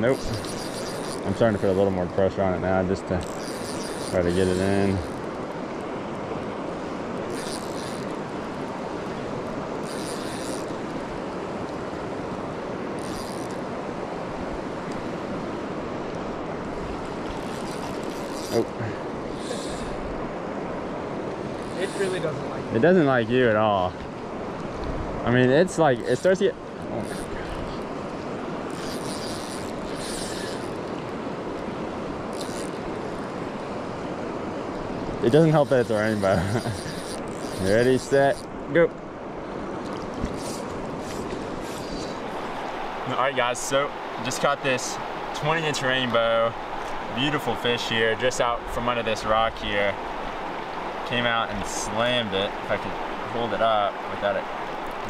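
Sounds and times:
river water rushing: 0:00.0 - 0:55.0
short high-pitched buzzes: 0:00.2 - 0:01.7, 0:03.2 - 0:05.2, 0:07.3 - 0:08.2, 0:09.8 - 0:10.9, 0:13.0 - 0:13.6, 0:17.3 - 0:18.6, 0:28.7 - 0:31.0, 0:40.2 - 0:42.6.

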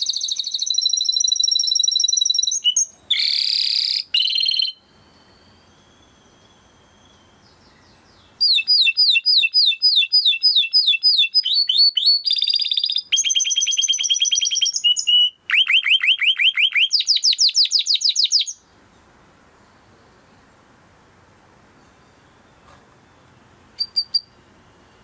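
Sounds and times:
canary singing: 0:00.0 - 0:18.7, 0:21.8 - 0:25.0.

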